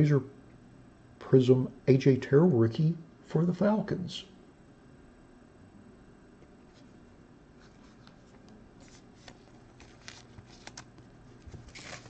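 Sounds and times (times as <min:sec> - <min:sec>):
plastic sleeve crinkling: 0:08.8 - 0:12.0.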